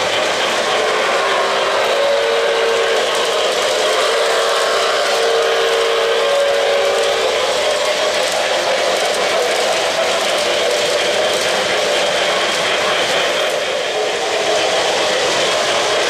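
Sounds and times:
model train rumbling on track: 0:00.0 - 0:16.0
deep train whistle: 0:00.5 - 0:07.5.

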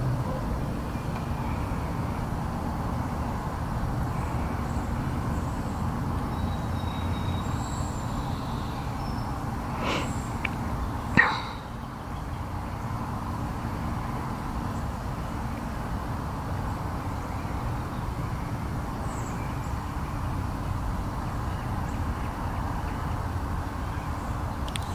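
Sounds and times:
faint hiss: 0:09.6 - 0:10.6.

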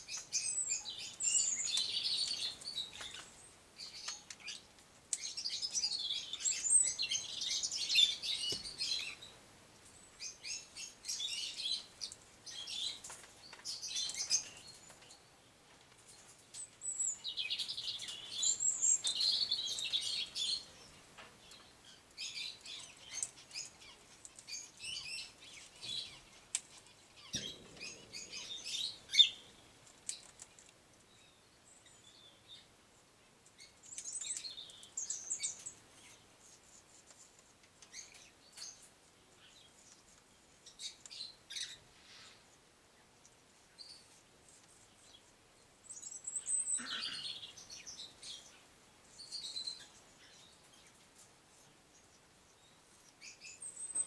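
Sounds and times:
birds chirping and chattering: 0:00.0 - 0:54.0.

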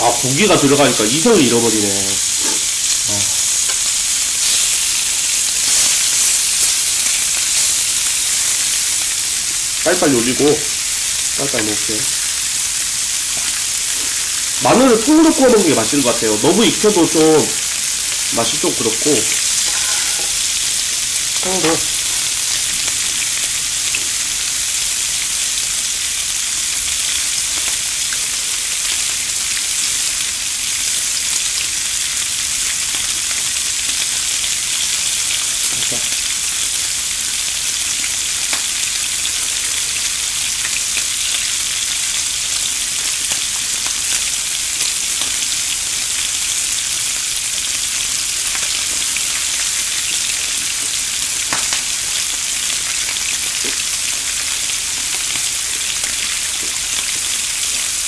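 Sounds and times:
meat sizzling on grill pan: 0:00.0 - 0:58.0
small pops of frying: 0:02.3 - 0:09.8, 0:11.4 - 0:14.6, 0:17.4 - 0:58.0.

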